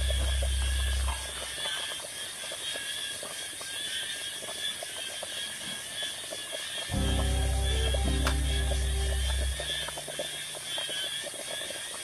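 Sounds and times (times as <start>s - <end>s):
high-pitched outdoor background: 6.9s - 10.6s.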